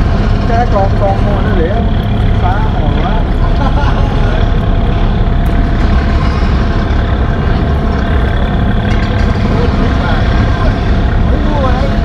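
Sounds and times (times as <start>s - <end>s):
heavy engines rumbling: 0.0s - 12.0s.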